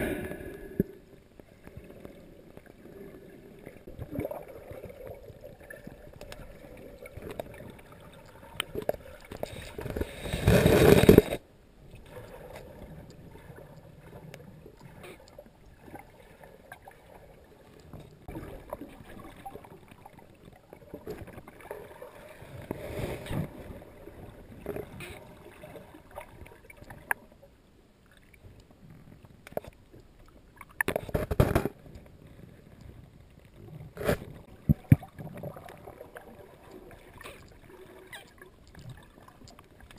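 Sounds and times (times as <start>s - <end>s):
rushes of water noise: 0.0s - 27.4s, 30.5s - 39.9s.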